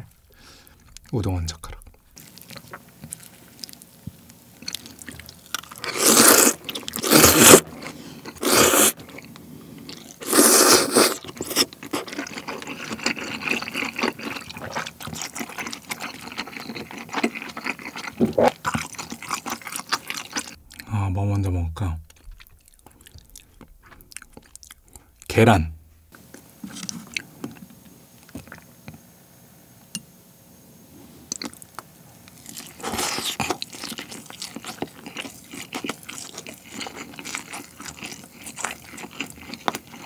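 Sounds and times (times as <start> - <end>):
noodles slurped loudly: 5.8 - 9.0, 10.2 - 20.5
wet chewing clicks: 22.1 - 25.0.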